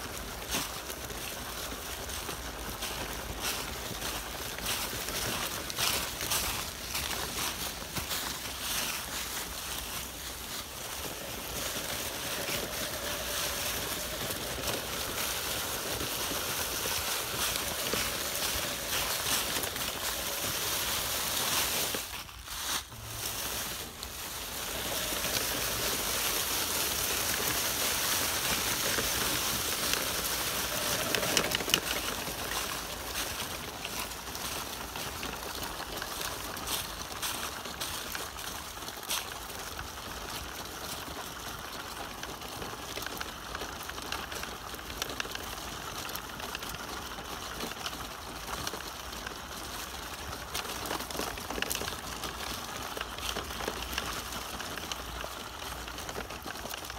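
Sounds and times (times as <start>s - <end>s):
dry leaves rustling and crunching: 0.0s - 56.9s.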